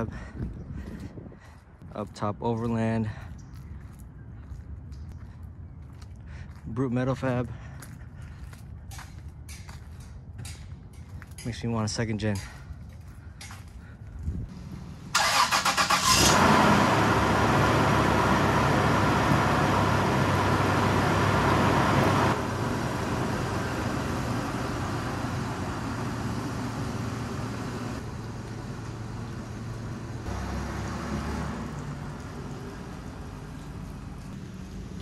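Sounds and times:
car engine cranking and idling: 0:14.5 - 0:35.0.

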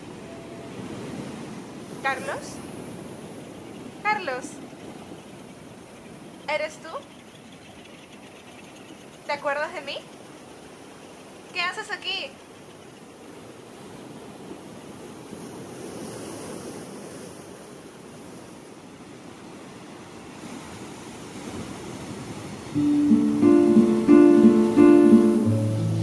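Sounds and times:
ocean surf: 0:00.0 - 0:06.9, 0:09.2 - 0:26.0
wind: 0:00.0 - 0:26.0
acoustic guitar music: 0:22.8 - 0:26.0.

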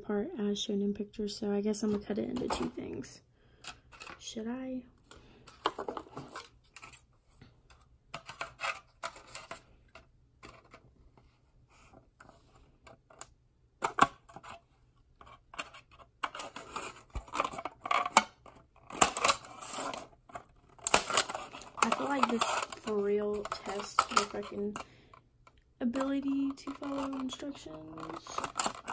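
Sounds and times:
plastic crackling and clicking: 0:15.2 - 0:28.9
scissors snipping plastic: 0:20.8 - 0:24.8, 0:26.0 - 0:28.9.

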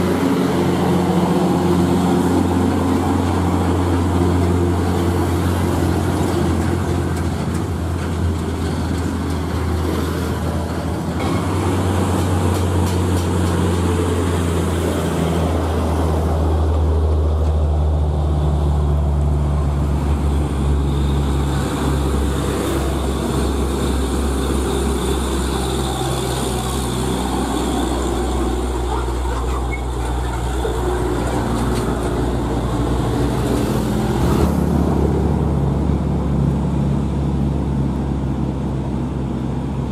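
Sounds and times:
diesel truck engines droning: 0:00.0 - 0:39.9
tyre and road noise: 0:00.0 - 0:39.9.

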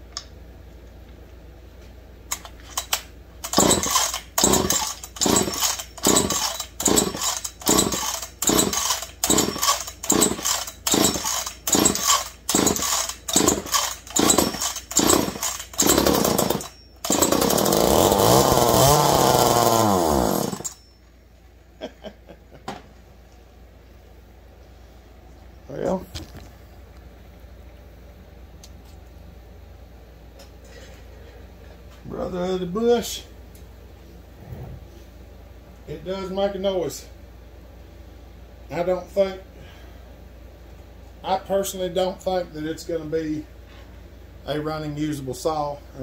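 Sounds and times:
starter cord pulls: 0:02.3 - 0:20.8
two-stroke chainsaw engine running: 0:03.4 - 0:20.8.

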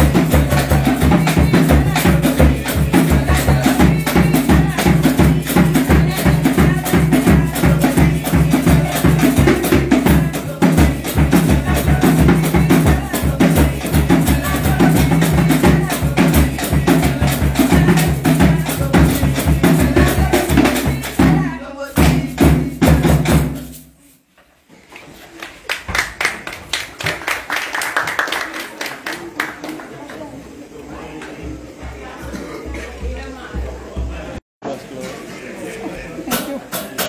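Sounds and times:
voices: 0:00.0 - 0:23.0, 0:27.8 - 0:37.0
voices singing along: 0:00.0 - 0:23.3
hand drumming: 0:00.0 - 0:23.7.

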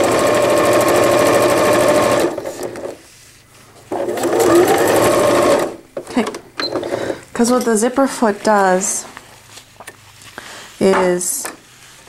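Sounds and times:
electric sewing machine stitching: 0:00.0 - 0:03.0, 0:03.9 - 0:05.8.

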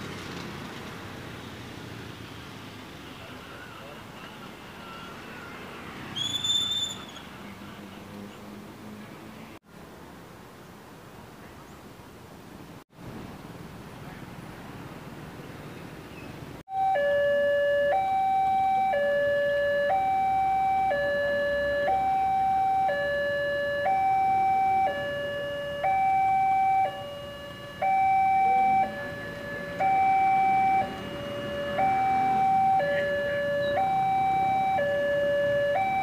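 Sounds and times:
two-tone crossing alarm: 0:16.7 - 0:36.0.

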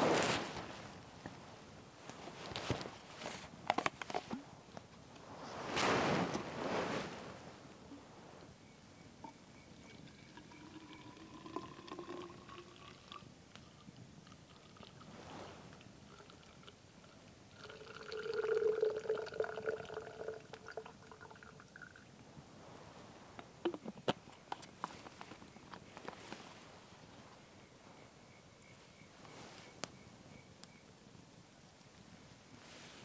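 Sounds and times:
water pouring into a bottle: 0:09.9 - 0:13.3, 0:17.5 - 0:22.0.

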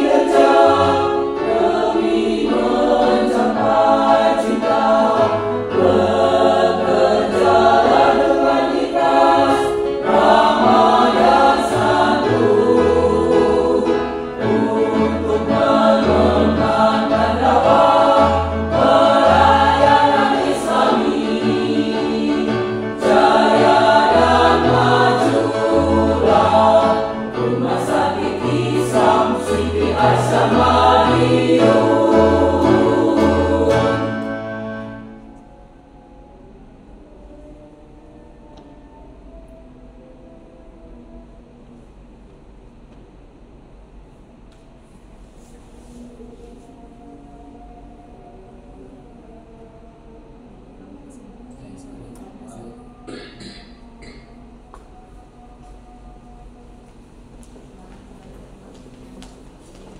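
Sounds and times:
mixed choir singing: 0:00.0 - 0:36.5, 0:50.2 - 0:57.6.

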